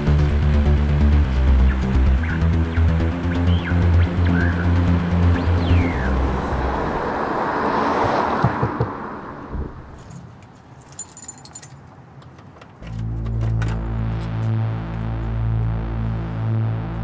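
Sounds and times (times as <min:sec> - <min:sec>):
music: 0:00.0 - 0:06.6, 0:12.8 - 0:17.0
car passing: 0:03.6 - 0:10.2
keys jingling at door: 0:10.0 - 0:13.7.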